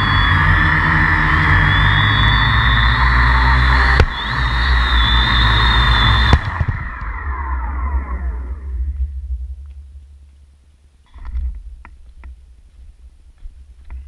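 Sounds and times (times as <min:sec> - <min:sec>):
drone motors whining: 0:00.0 - 0:10.0
drone knocking on concrete: 0:03.7 - 0:04.4.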